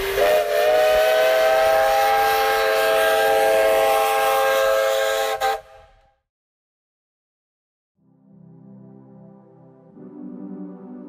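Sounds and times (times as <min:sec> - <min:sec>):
hissing steam: 0:00.0 - 0:05.7
steam whistle chord: 0:00.0 - 0:06.1.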